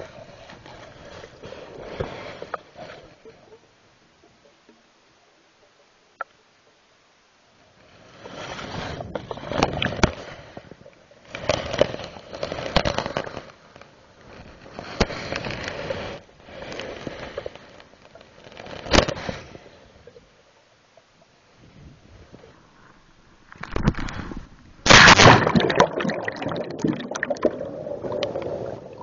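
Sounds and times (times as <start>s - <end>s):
rushing water noise: 24.9s - 29.0s.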